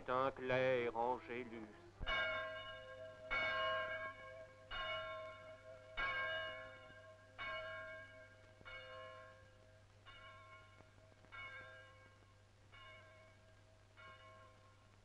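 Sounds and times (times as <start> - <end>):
church bell tolling: 2.0 - 14.8.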